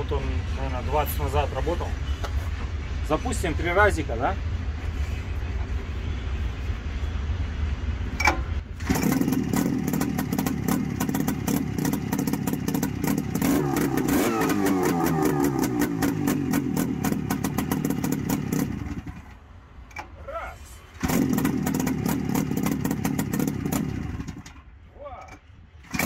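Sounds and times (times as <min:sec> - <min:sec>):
engine cranking: 0:08.2 - 0:20.2, 0:21.0 - 0:24.7, 0:25.3 - 0:26.0.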